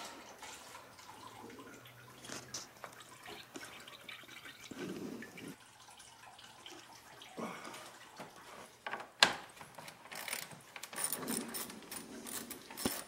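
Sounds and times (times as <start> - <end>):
coolant dripping into pan: 0.0 - 9.7.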